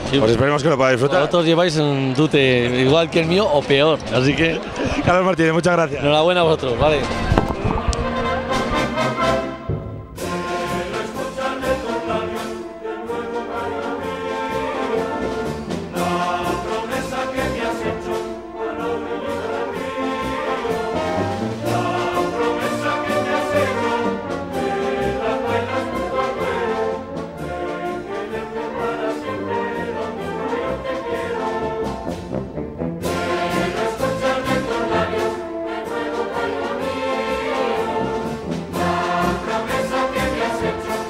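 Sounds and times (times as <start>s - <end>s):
brass band playing: 6.8s - 41.0s
regular drumbeat: 33.0s - 41.0s.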